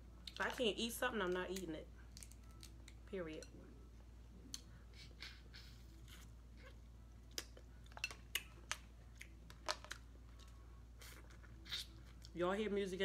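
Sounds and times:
soft chewing sounds: 4.3 - 12.4.

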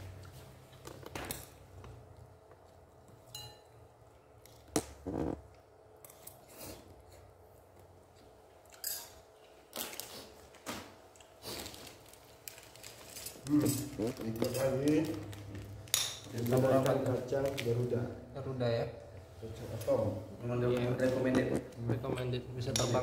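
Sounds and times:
food packaging rustling: 9.7 - 18.0.

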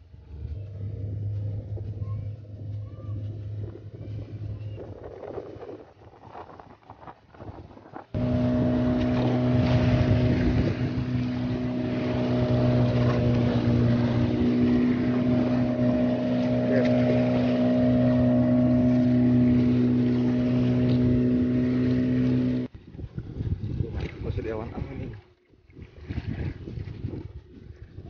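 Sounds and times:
sea noise: 0.0 - 22.7
boat engine running: 0.0 - 28.0
wind: 0.0 - 28.0.

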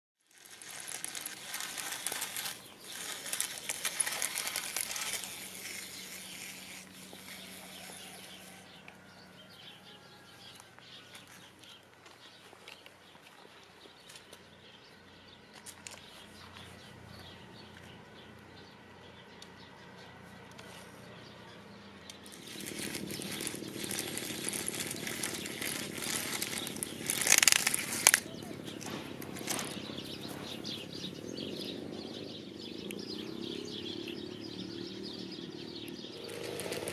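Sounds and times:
toy motor and plastic legs rattling: 0.2 - 8.8, 22.1 - 30.8, 36.1 - 36.9.

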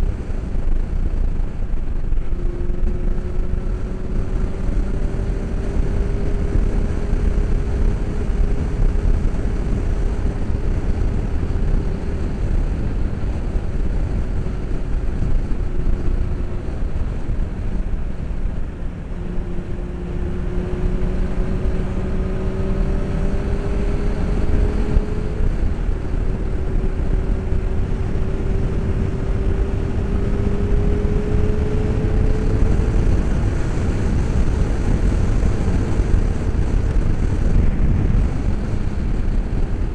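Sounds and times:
motorcycle engine: 0.0 - 39.9
wind rumble in helmet: 0.0 - 39.9.

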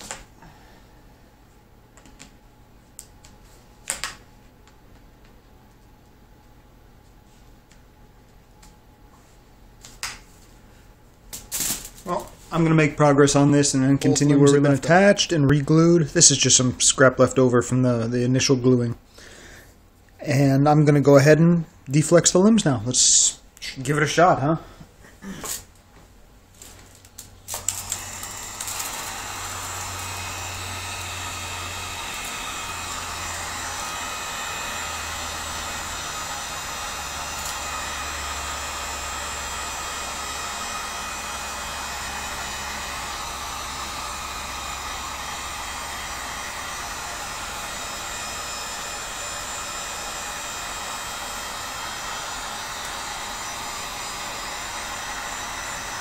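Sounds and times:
heat gun blowing hot air: 0.0 - 0.3, 27.4 - 56.0.

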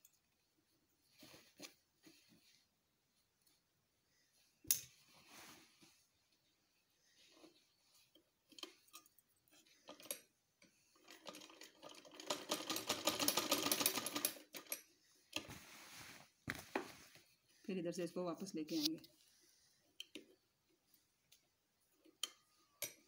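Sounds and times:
sewing machine clattering: 11.0 - 14.8.

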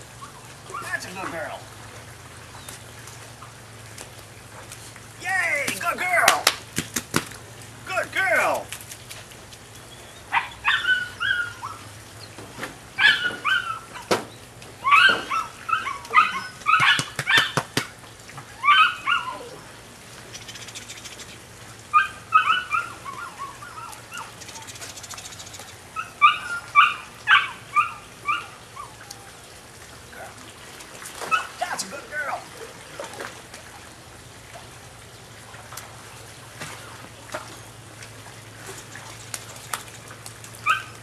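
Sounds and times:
puppy yipping and whining: 9.9 - 11.9, 13.0 - 14.2, 14.8 - 17.6, 18.6 - 19.6, 21.9 - 24.8, 26.0 - 29.4, 31.2 - 31.6, 40.6 - 41.0.

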